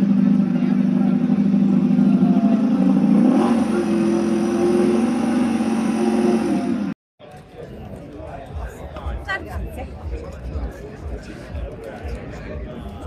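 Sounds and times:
engine humming: 0:00.0 - 0:07.0.

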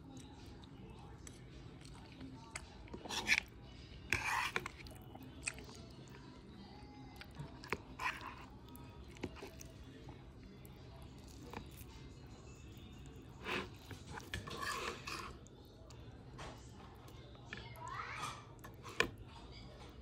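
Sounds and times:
soft wet food sounds: 0:00.0 - 0:20.0
fork scraping a bowl: 0:02.9 - 0:03.5, 0:04.1 - 0:04.9, 0:07.7 - 0:08.5, 0:13.3 - 0:15.5.

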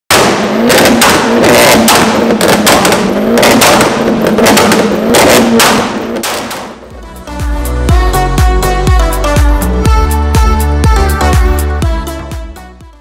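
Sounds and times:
exhaust cracks: 0:00.1 - 0:07.5
car engine revving: 0:00.1 - 0:09.2.

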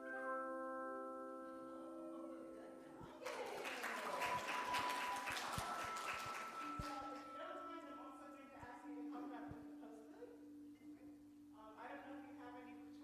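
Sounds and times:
hand chimes ringing: 0:00.0 - 0:11.2
people clapping: 0:03.2 - 0:07.4.

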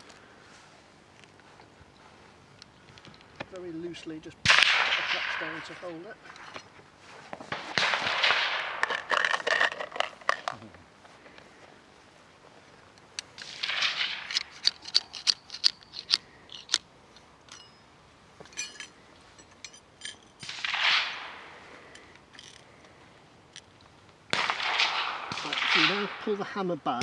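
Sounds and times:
sharp metallic clicks: 0:12.9 - 0:17.8.

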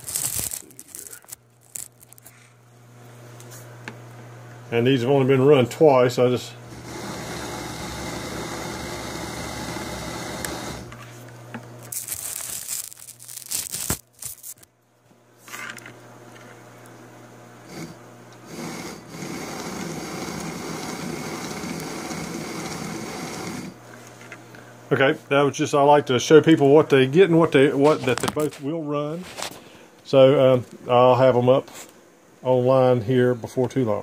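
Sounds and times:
electric motor and gears whirring: 0:00.0 - 0:02.4, 0:05.3 - 0:14.7, 0:17.6 - 0:24.1.

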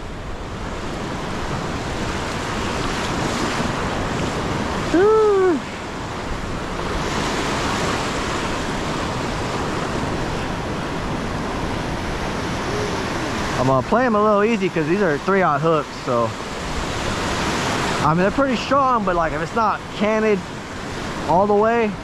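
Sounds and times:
wind on microphone: 0:00.0 - 0:13.8
surf breaking on beach: 0:00.0 - 0:22.0
short rising and falling cry: 0:04.9 - 0:05.7.

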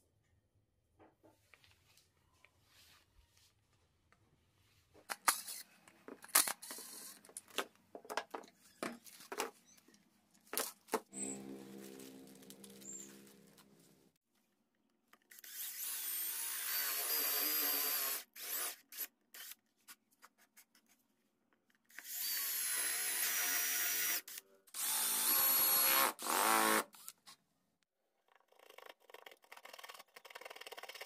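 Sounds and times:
cordless drill boring wood: 0:06.4 - 0:07.2, 0:15.3 - 0:19.5, 0:21.9 - 0:27.1.

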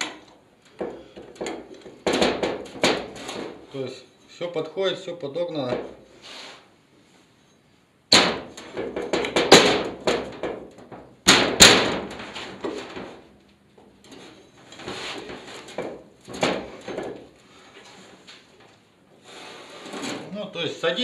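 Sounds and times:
sharp metal knocks: 0:00.8 - 0:03.5, 0:08.1 - 0:13.2.

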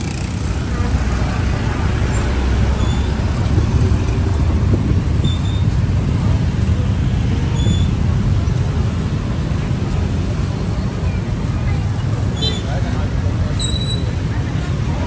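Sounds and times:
city street traffic rumble: 0:00.0 - 0:15.0
faint high squeaks: 0:07.5 - 0:08.0, 0:13.5 - 0:14.2.

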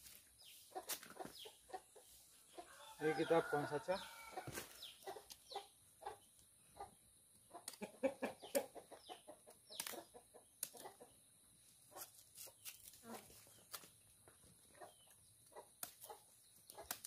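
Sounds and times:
chickens clucking: 0:00.4 - 0:02.8, 0:04.2 - 0:12.1, 0:14.3 - 0:17.0.

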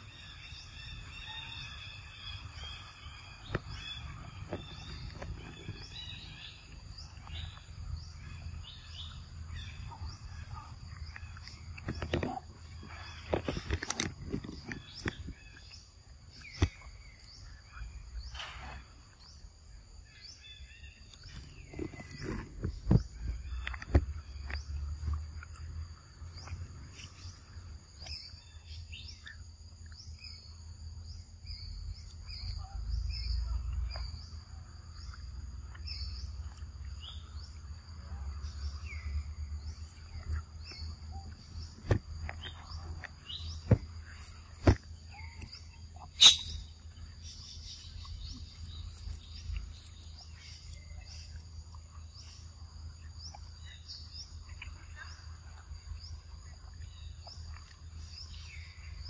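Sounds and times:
insects trilling: 0:00.0 - 0:59.0
short chirps: 0:46.2 - 0:46.7.

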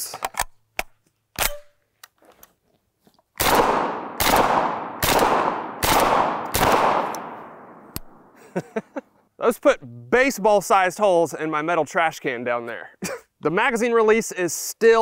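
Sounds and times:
shotgun shots: 0:03.4 - 0:08.3.

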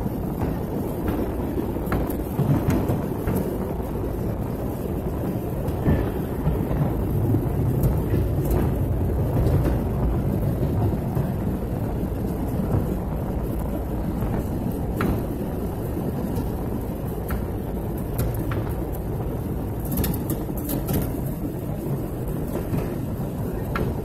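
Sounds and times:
airliner engines rumbling: 0:00.0 - 0:24.0
rushing air: 0:00.0 - 0:24.0.

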